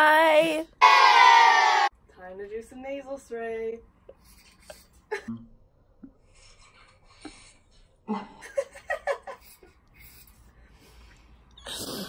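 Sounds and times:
woman giggling: 4.4 - 5.4.

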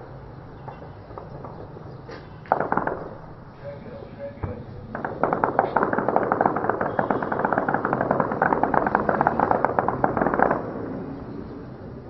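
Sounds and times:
automatic gunfire: 2.4 - 3.4, 4.8 - 11.0.

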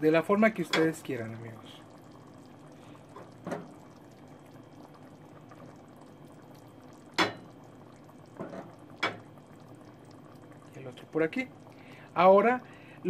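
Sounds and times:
soup bubbling: 0.0 - 13.0.

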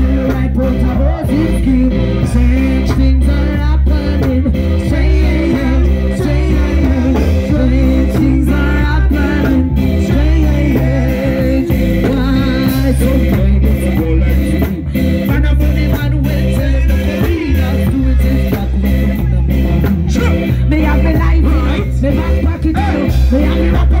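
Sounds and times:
live band music: 0.0 - 24.0.

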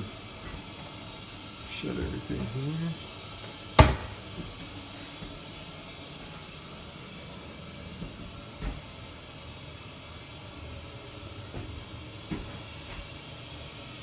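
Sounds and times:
steady hiss: 0.0 - 14.0
cabinet door knocking shut: 3.8 - 4.1.

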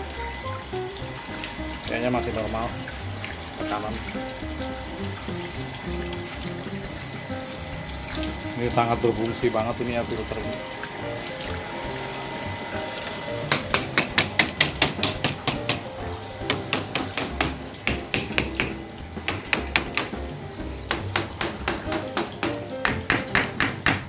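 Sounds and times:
background music: 0.0 - 24.0
hammer tapping plastic pipe: 13.4 - 24.0.

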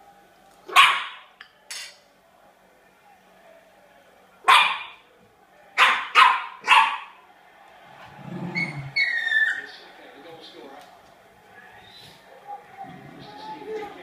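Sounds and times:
dog barking sharply: 0.7 - 1.3, 4.5 - 5.0, 5.8 - 7.1
dog growling low: 8.1 - 9.0.

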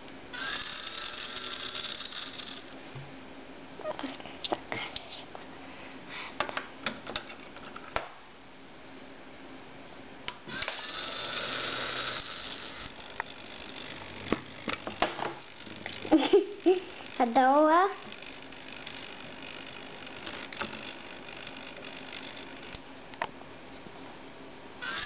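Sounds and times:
small electric motor whirring: 0.3 - 2.8, 10.5 - 17.4, 18.0 - 22.8, 24.8 - 25.0.

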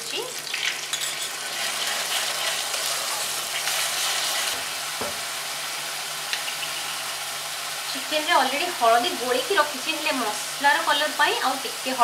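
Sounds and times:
paste sizzling in hot oil: 0.1 - 12.0
spatula stirring in pan: 0.9 - 4.7.

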